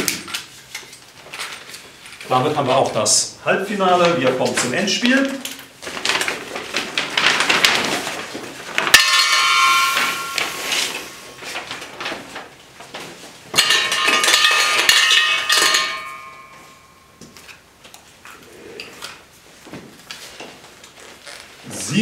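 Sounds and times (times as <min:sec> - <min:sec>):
paper lots rustling: 0:00.0 - 0:22.0
metallic clang ringing: 0:08.9 - 0:11.5, 0:13.6 - 0:17.2
clinks and rattling in metal cup: 0:13.6 - 0:16.9.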